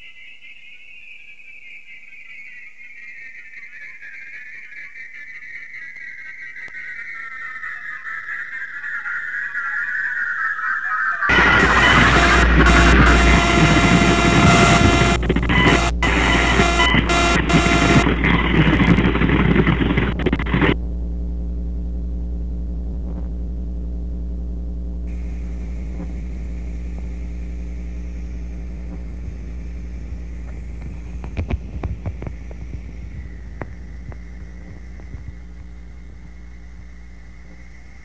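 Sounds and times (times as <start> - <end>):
crackles and clicks: 11.3 - 38.0
harsh static noise: 11.3 - 38.0
low droning hum: 11.3 - 38.0.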